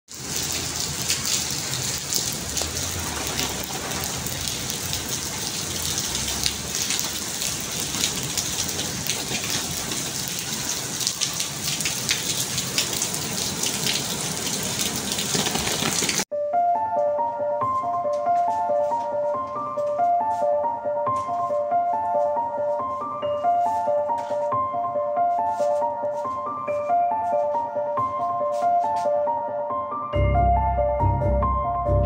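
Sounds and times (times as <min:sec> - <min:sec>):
rain falling on paved ground: 0:00.1 - 0:16.3.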